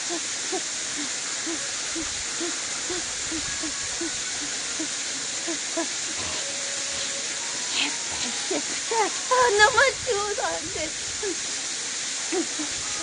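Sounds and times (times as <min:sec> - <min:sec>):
woman humming from cold: 0:00.0 - 0:09.6, 0:11.2 - 0:11.5, 0:12.3 - 0:13.0
steady hiss: 0:00.0 - 0:13.0.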